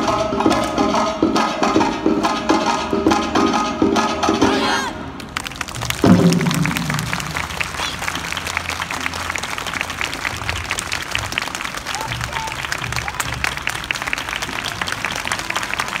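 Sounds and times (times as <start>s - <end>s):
crowd applause: 5.2s - 16.0s.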